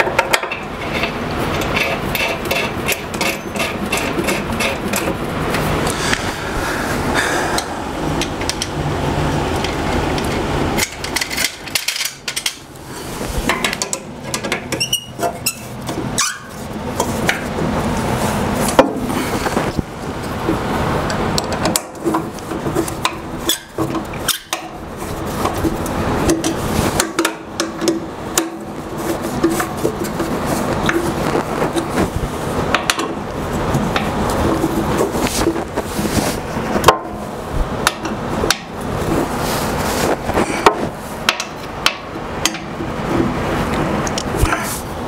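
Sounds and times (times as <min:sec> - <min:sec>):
steady low hum: 0:00.0 - 0:45.0
hand tools clicking on metal: 0:00.1 - 0:05.2.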